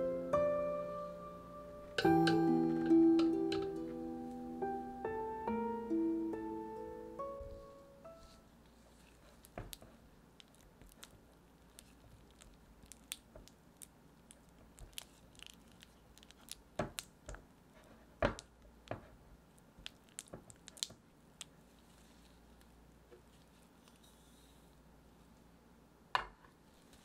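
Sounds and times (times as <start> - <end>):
butter squishing: 8.8 - 17.5, 19.4 - 24.0.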